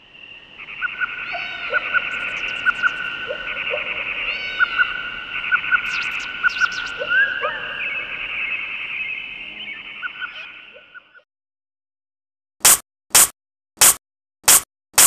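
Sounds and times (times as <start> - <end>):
flock of birds chirping: 0.0 - 11.2.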